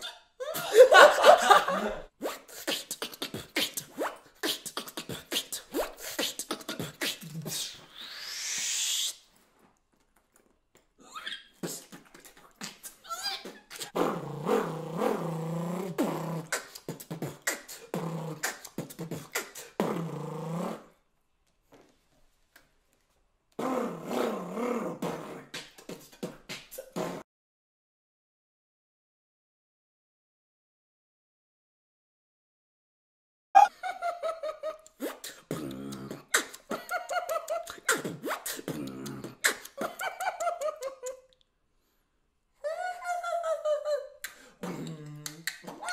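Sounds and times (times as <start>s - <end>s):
beatboxer imitating an engine drone: 2.3s - 8.4s, 13.5s - 20.9s, 23.6s - 27.2s, 34.9s - 36.8s, 37.6s - 39.9s, 44.3s - 45.8s
mouth pops and clicks: 16.0s - 20.0s, 34.8s - 40.1s, 44.2s - 45.9s.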